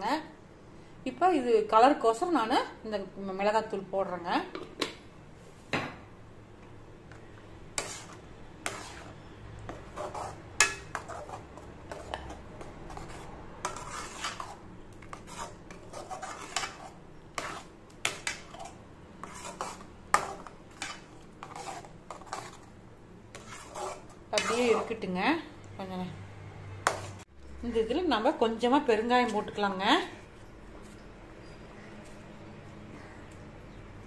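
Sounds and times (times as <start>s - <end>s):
metal spoon scraping metal pan: 7.7s - 22.7s, 23.3s - 25.1s, 26.8s - 27.2s.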